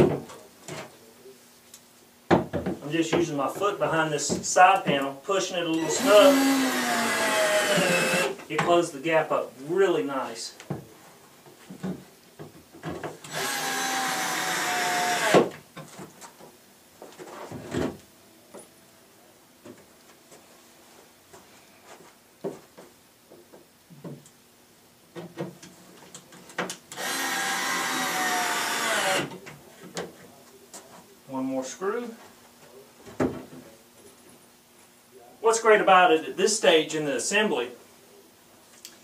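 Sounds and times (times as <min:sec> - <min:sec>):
knocks and taps on cabinet: 0:02.3 - 0:02.8
power drill driving screws: 0:05.8 - 0:08.4, 0:13.2 - 0:15.5, 0:26.9 - 0:29.3.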